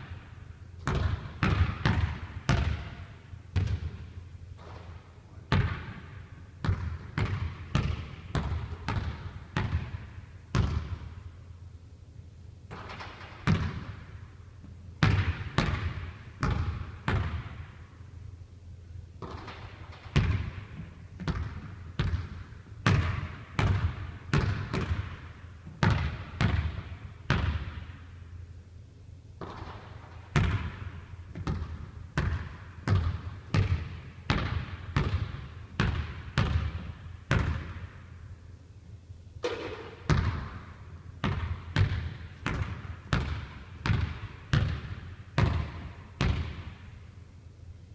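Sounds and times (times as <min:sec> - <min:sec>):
basketball bouncing on wooden floor: 0:00.8 - 0:03.0, 0:03.6 - 0:04.9, 0:05.5 - 0:11.2, 0:12.7 - 0:14.1, 0:15.0 - 0:17.7, 0:19.2 - 0:27.9, 0:29.4 - 0:38.0, 0:39.4 - 0:46.9.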